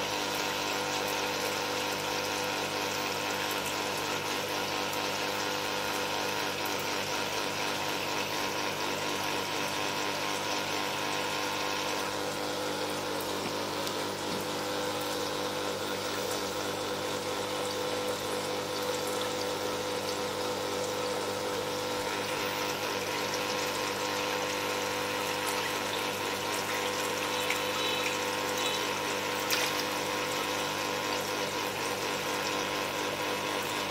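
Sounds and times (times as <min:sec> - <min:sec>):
pump hum: 0:00.0 - 0:33.9
water splashing and churning: 0:25.1 - 0:32.3.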